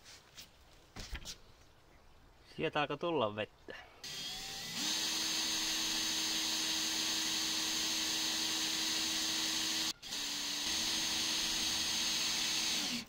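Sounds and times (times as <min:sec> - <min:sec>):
cordless drill motor whine: 0:04.0 - 0:13.0.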